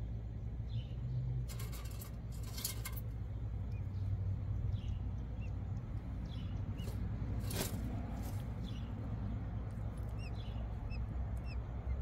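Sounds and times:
steady low rumble: 0.0 - 12.0
high bird chirps: 10.0 - 12.0.

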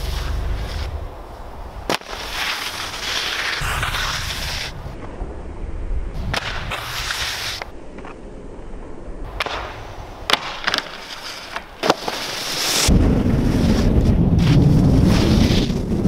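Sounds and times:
skis scraping across snow: 0.0 - 4.8, 6.2 - 7.8, 10.5 - 16.0
sharp cracks: 1.8 - 5.2, 6.2 - 8.2, 9.3 - 14.7
wind rumbling on microphone: 3.6 - 10.3, 12.8 - 16.0.

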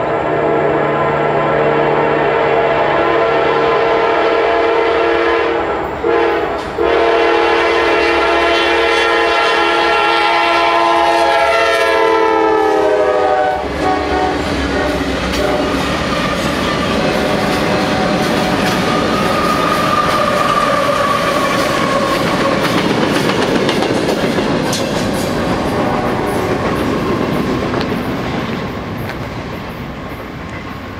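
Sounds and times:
locomotive air horn: 0.0 - 16.2, 17.0 - 22.5, 25.7 - 26.6
locomotives rumbling past on rails: 0.0 - 30.9.

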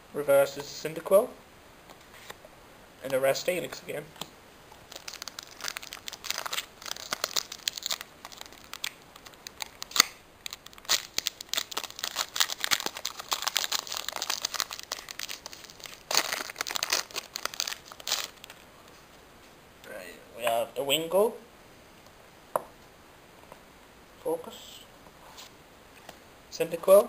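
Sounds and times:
foil wrapper crinkling and tearing: 4.7 - 18.7.

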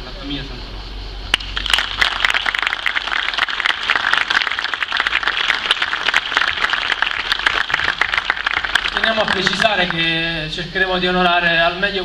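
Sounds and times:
crowd applauding: 1.3 - 10.2.

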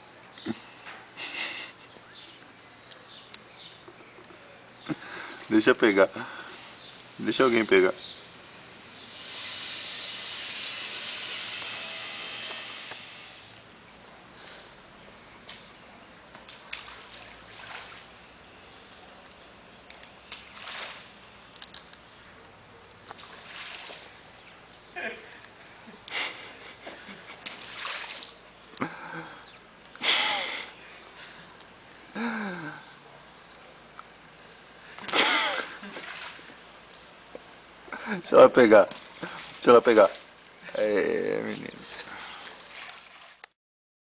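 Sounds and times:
pool water splashing: 0.0 - 43.5
garden hose spraying water: 7.0 - 13.8.

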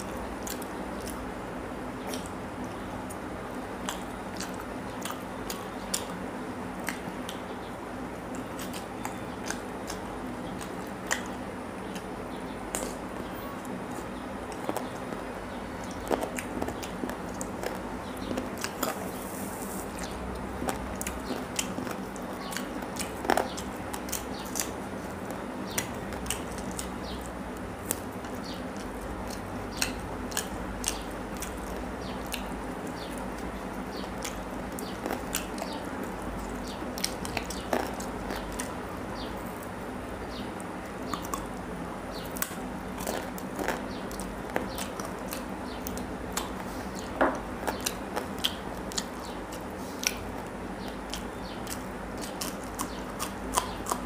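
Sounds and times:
person chewing food: 0.0 - 1.3, 2.0 - 7.5, 8.2 - 54.0
steady background hum: 0.0 - 54.0
wet mouth clicks and smacks: 6.8 - 7.4, 10.6 - 12.1, 42.4 - 50.3.

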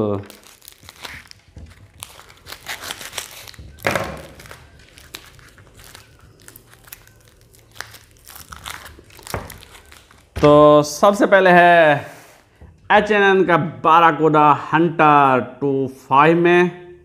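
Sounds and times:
plastic wrapping crinkling: 0.0 - 11.0.

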